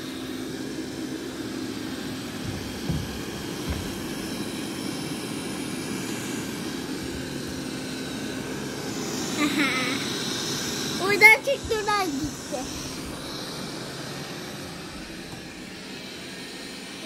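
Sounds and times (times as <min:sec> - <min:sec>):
robot vacuum whirring: 0:00.5 - 0:17.0
soft low knocks: 0:02.3 - 0:04.4.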